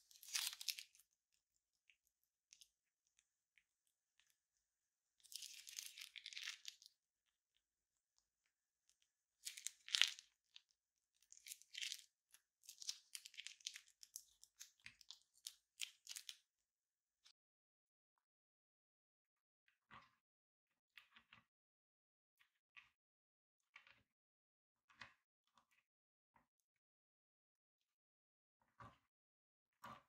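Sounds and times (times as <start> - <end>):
plastic piping bag crinkling: 0.1 - 0.9.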